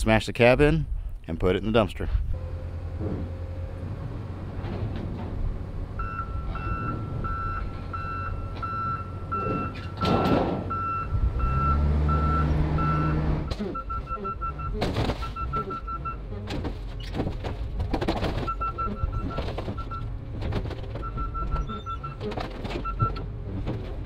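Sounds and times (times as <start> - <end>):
loader engine running: 2.2 - 24.0
backup alarm beeping: 6.0 - 16.3, 18.4 - 20.1, 21.0 - 23.2.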